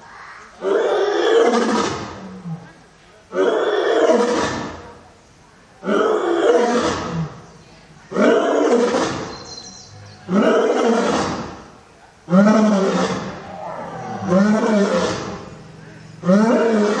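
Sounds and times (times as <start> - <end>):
lion roaring: 10.2 - 11.7, 12.3 - 17.0.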